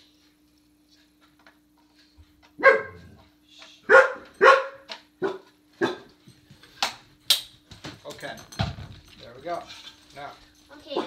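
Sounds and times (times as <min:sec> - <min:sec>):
dog barking: 0:02.6 - 0:03.1, 0:03.9 - 0:06.1.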